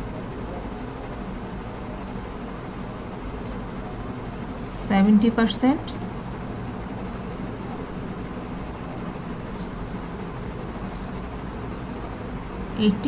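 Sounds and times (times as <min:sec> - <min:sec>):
low background hum: 0:00.0 - 0:13.0
pen scratching on paper: 0:01.0 - 0:04.8, 0:06.9 - 0:13.0.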